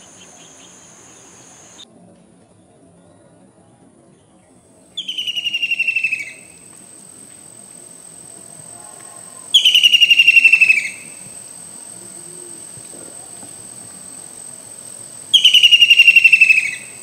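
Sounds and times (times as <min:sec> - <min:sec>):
kingfisher rattling trills: 0:00.0 - 0:01.8, 0:09.5 - 0:11.8, 0:13.7 - 0:17.0.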